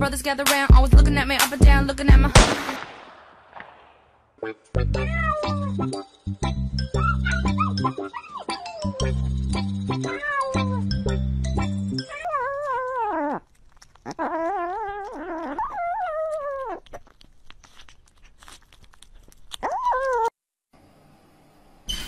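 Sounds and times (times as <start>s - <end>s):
cat meowing: 5.0s - 5.8s, 10.0s - 11.0s, 12.0s - 13.4s, 14.1s - 16.9s
cat chewing and licking: 12.0s - 20.3s.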